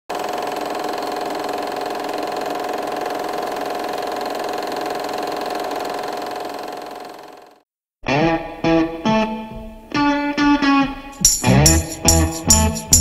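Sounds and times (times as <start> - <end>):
film projector whirring: 0.1 - 7.6.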